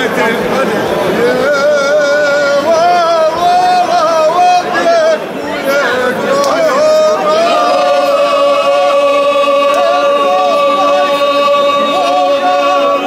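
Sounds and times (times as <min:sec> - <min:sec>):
group singing unaccompanied: 0:01.1 - 0:13.0.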